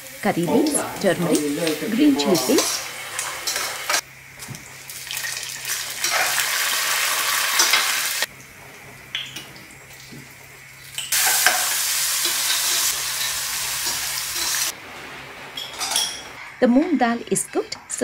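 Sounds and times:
food sizzling in hot oil: 0.0 - 8.3, 9.3 - 14.8.

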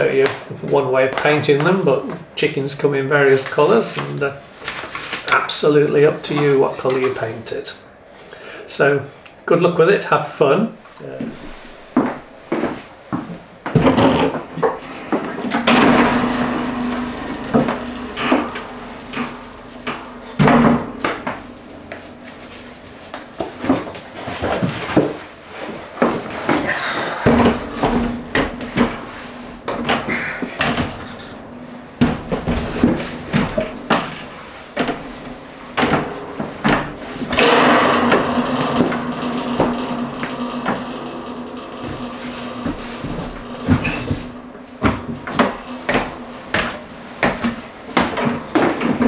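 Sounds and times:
loft ladder sliding scrape: 14.1 - 49.0
wooden ladder knocks and clatters: 32.0 - 49.0.

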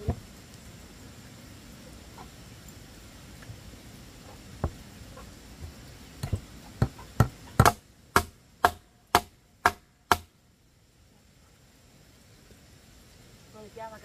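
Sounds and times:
hammer blows on wooden plank: 6.2 - 10.3.

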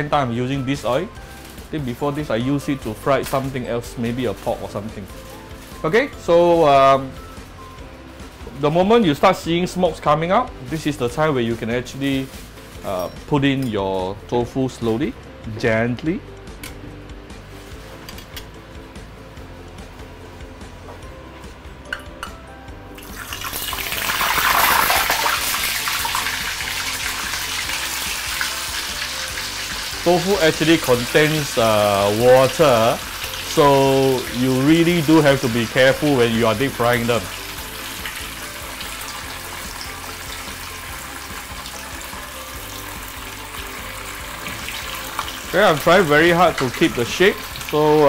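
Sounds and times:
tofu sizzling in hot oil: 23.0 - 48.0.

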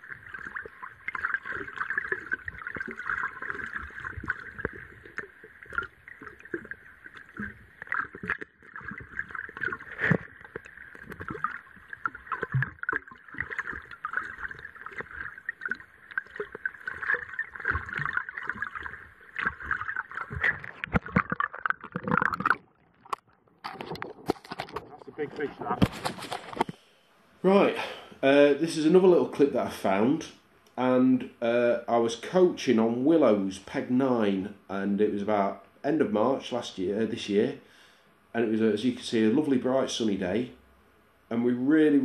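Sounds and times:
muffled underwater crackling and gurgling: 0.0 - 26.9.

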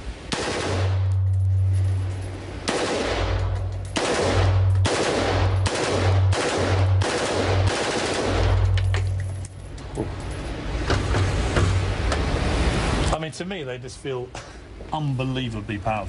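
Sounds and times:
automatic rifle firing bursts: 0.3 - 1.1, 2.6 - 8.7.

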